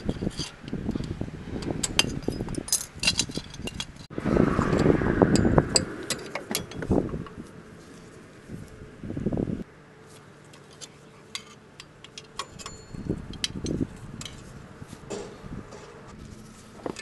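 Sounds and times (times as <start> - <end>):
low handling rumble: 0.7 - 9.7
metal tools clinking on springs: 10.6 - 14.5.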